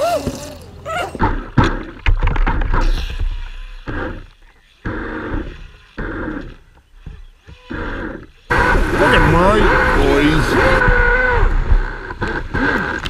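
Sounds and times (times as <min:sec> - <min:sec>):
electric boat motor bursts: 0:02.8 - 0:13.0.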